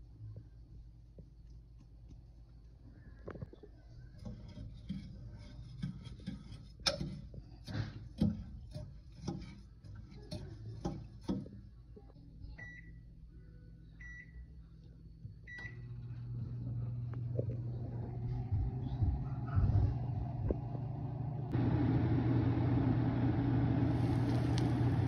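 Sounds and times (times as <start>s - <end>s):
microwave keypad beeps: 12.6s - 13.0s
microwave humming: 14.0s - 25.0s.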